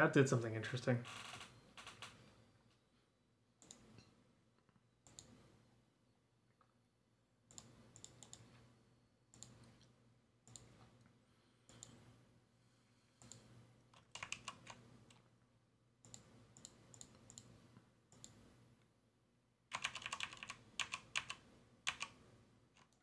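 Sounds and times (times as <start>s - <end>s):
computer keyboard typing: 7.5s - 8.5s, 13.2s - 15.2s, 19.7s - 22.2s, 22.8s - 23.0s.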